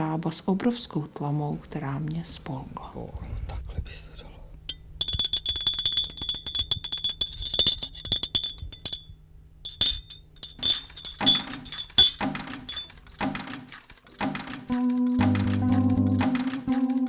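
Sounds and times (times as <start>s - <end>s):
teaspoon clinking: 4.7s - 13.1s.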